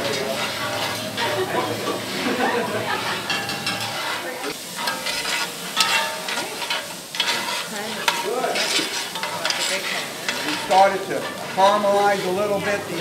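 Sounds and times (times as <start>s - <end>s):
metal spoon scraping pan: 0.0s - 13.0s
vegetables sizzling in skillet: 0.0s - 13.0s.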